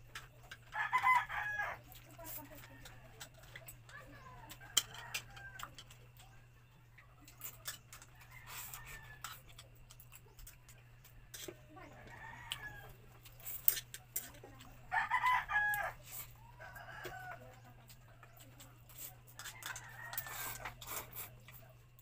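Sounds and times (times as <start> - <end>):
rooster crowing: 0.7 - 1.8, 4.7 - 5.8, 8.1 - 9.4, 11.8 - 13.0, 14.9 - 17.7, 19.4 - 20.7
eating noises: 1.8 - 14.8.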